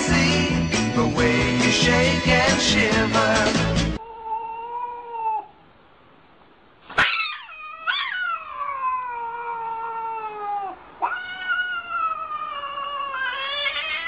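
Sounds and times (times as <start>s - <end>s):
cat yowling: 4.0s - 5.6s, 6.9s - 14.0s.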